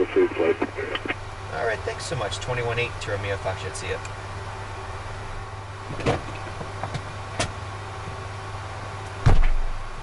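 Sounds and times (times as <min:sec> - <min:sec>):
cockpit electrical hum: 0:00.0 - 0:10.0
heavy thump: 0:09.2 - 0:09.7.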